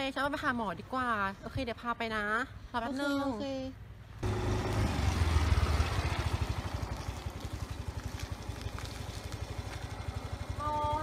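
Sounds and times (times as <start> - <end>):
motor scooter engine running: 4.2 - 11.0.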